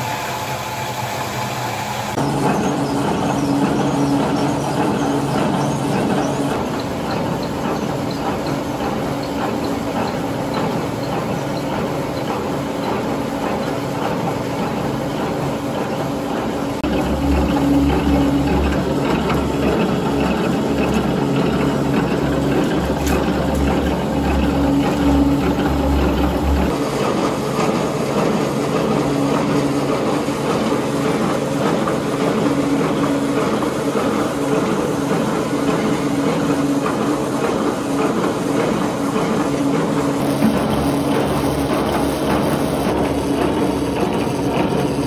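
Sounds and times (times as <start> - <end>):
higher machine noise: 0.0 - 45.0
machinery mechanical hum: 0.0 - 45.0.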